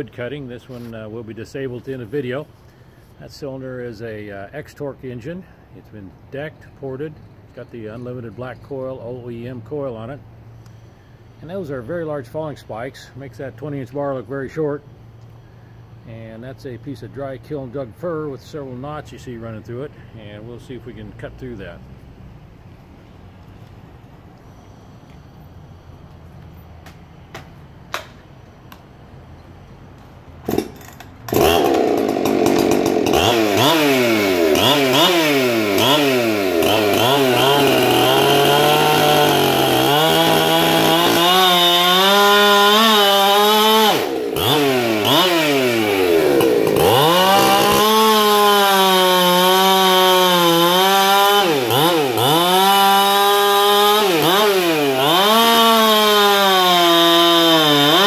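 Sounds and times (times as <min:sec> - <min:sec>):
chainsaw cutting wood: 0:30.4 - 0:58.0.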